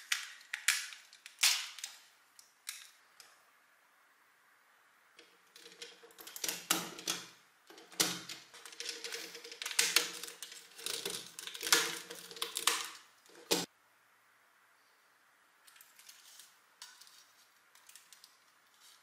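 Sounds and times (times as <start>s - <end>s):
plastic pieces clicking and rattling: 0.0s - 3.0s, 5.2s - 13.7s.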